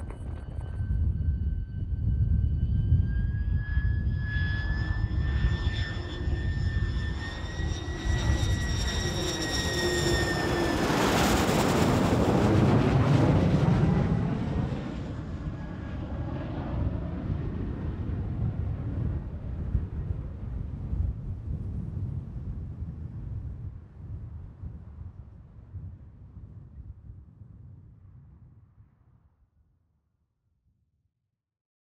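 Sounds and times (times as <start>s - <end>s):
jet noise rush overhead: 0.0s - 27.2s
jet engine whine: 0.0s - 28.5s
wind rumbling on microphone: 0.0s - 29.2s.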